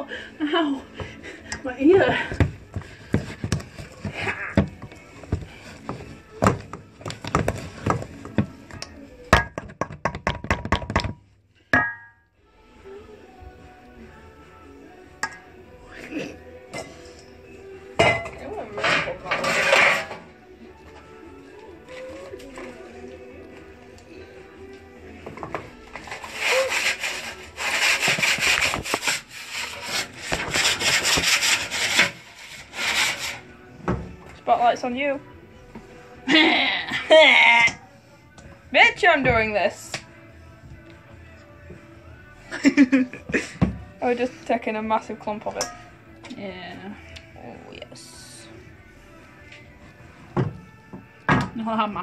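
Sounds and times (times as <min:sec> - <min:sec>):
knocks on steel mixing bowl: 0:09.4 - 0:11.2
rough rubbing and scraping: 0:18.7 - 0:20.3, 0:25.9 - 0:33.6.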